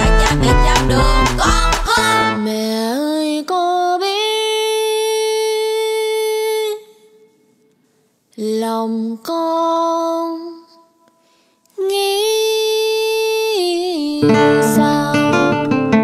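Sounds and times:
instrumental accompaniment: 0.0s - 2.4s
woman singing long notes: 11.8s - 15.7s.

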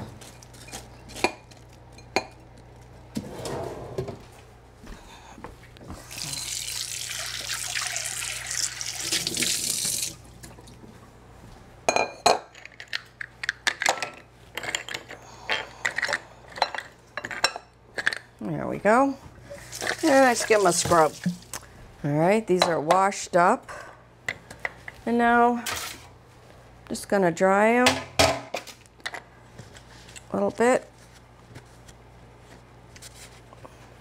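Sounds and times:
kitchen tap running: 6.0s - 10.5s, 19.8s - 21.6s.

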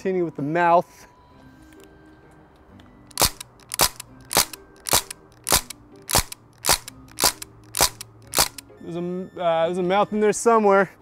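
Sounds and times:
air rifle sharp shots: 3.2s - 8.6s.

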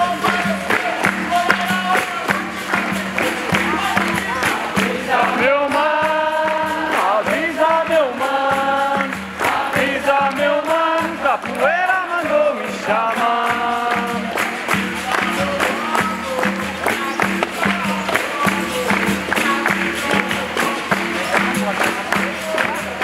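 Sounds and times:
hand percussion: 0.0s - 23.0s
voices singing: 0.0s - 23.0s.

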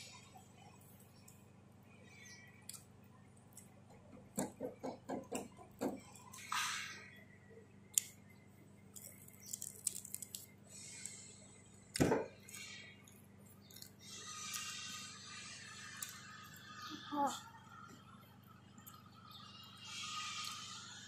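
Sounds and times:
crisp crackling bites: 8.9s - 11.3s.

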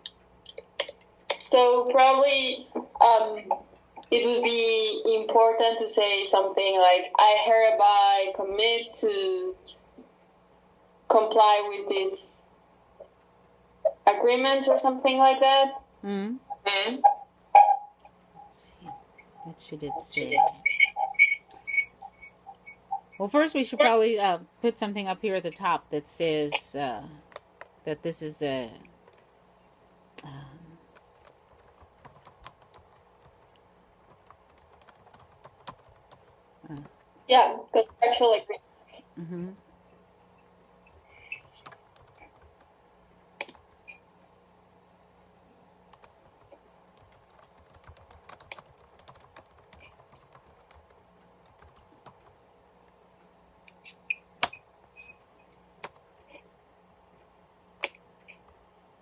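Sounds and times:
keyboard keys clicking: 30.9s - 37.0s, 41.6s - 42.7s, 45.9s - 46.1s, 47.0s - 52.3s.

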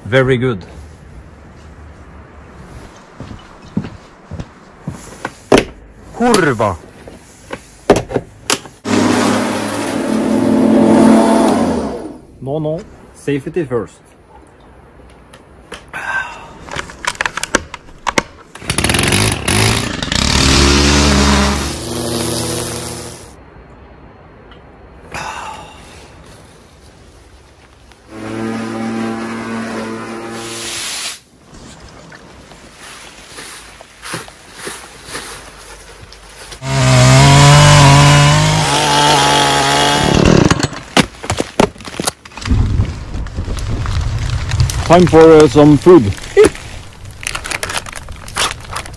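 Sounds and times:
chainsaw cutting log: 8.8s - 11.9s, 18.6s - 23.3s, 36.6s - 40.9s
brushcutter engine running: 18.6s - 23.3s, 36.6s - 40.4s.

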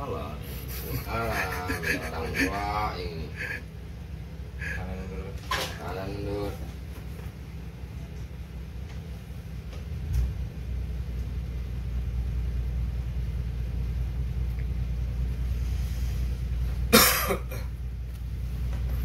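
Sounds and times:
ferry engines rumbling: 0.0s - 19.0s
person coughing: 16.9s - 17.7s.

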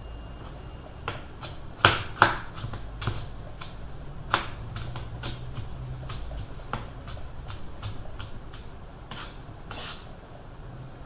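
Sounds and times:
knife chopping on cutting board: 1.0s - 10.0s.

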